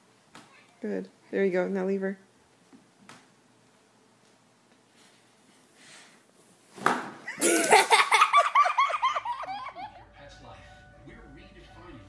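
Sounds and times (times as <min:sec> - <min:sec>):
people laughing hard: 0:07.4 - 0:10.0.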